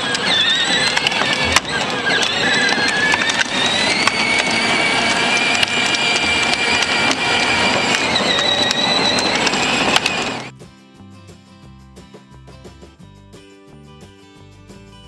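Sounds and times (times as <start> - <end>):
electric motor whine: 0.0 - 10.5
plastic wheels on pavement: 0.0 - 10.5.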